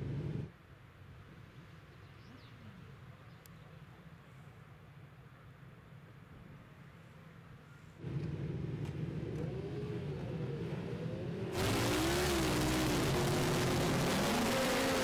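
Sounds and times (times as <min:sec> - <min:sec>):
motorcycle engines rumbling: 0:08.0 - 0:15.0
rushing noise: 0:11.6 - 0:15.0.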